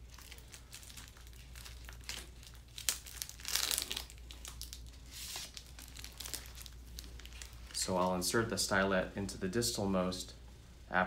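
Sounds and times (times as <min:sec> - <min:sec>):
paper and plastic wrapper crinkling: 0:00.0 - 0:08.2.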